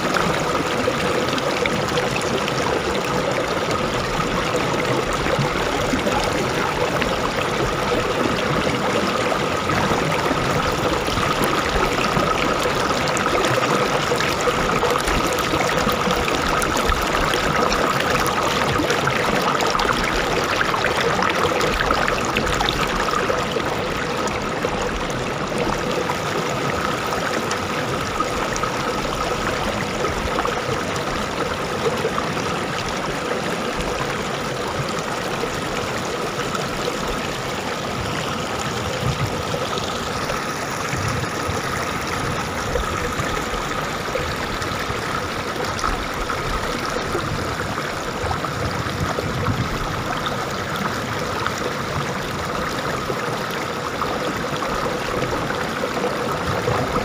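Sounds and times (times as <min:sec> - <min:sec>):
river rushing over stones: 0:00.0 - 0:57.0.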